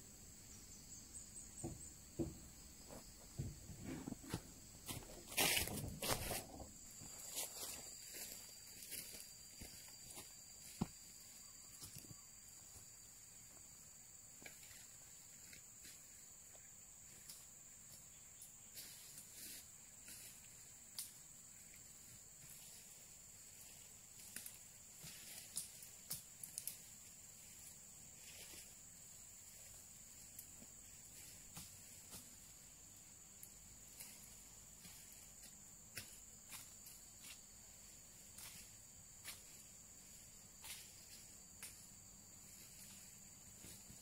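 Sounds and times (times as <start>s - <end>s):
snaps and rustles in undergrowth: 4.9s - 8.3s, 24.2s - 28.7s.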